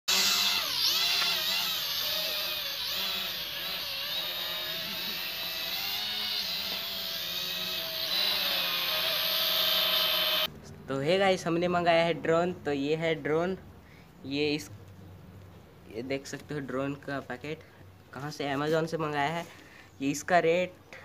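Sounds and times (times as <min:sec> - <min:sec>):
drone propellers whining: 0:00.1 - 0:10.5.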